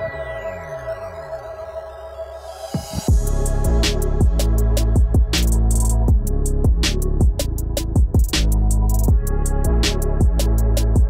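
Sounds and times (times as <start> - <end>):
deep kick drums: 2.9 - 11.0
sustained heavy bass: 3.1 - 11.0.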